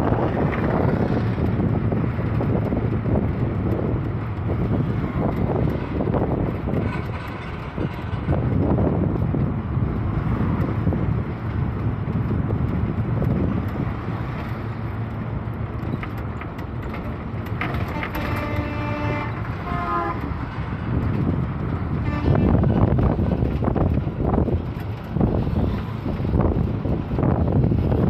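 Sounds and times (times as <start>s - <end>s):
bus engine and road rumble: 0.0s - 28.0s
wind: 0.0s - 28.0s
vehicle horn: 17.7s - 20.4s, 21.9s - 22.8s.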